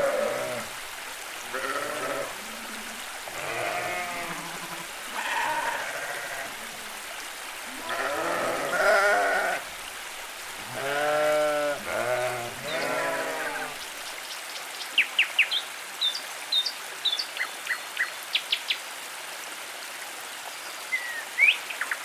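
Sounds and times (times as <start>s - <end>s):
sheep bleating: 0.0s - 0.7s, 1.5s - 6.7s, 7.7s - 9.7s, 10.7s - 13.8s.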